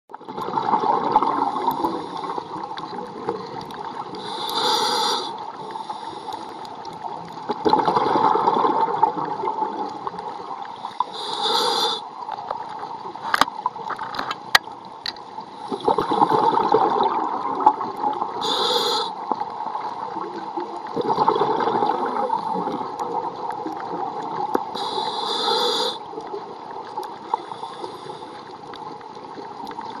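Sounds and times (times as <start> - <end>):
underwater bubbles gurgling: 0.1 - 30.0
regulator inhalation hiss: 4.2 - 6.6, 10.8 - 12.1, 18.4 - 19.2, 24.8 - 26.1, 27.4 - 28.4.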